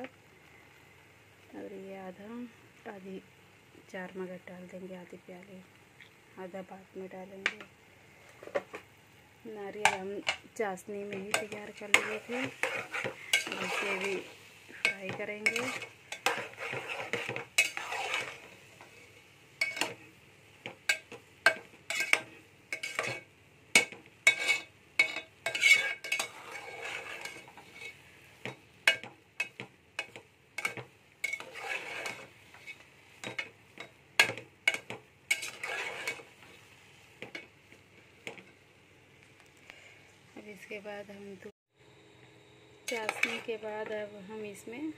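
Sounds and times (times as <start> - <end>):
soft frying sizzle: 0.0 - 41.5, 42.2 - 44.9
metal spatula scraping steel pot: 11.1 - 20.0, 20.9 - 28.0, 28.9 - 33.5, 34.2 - 36.6, 42.9 - 43.6.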